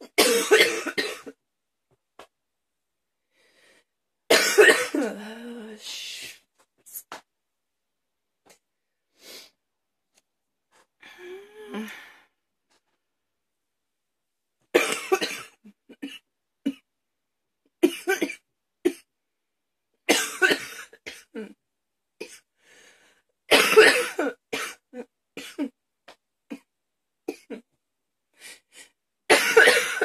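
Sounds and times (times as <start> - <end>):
woman coughing hard: 0.0 - 1.4, 4.3 - 5.2, 14.8 - 16.8, 17.8 - 19.1, 20.1 - 21.5, 23.5 - 25.8, 29.3 - 30.0
breaths: 3.2 - 4.0, 10.9 - 12.4, 22.5 - 23.3, 28.3 - 29.0.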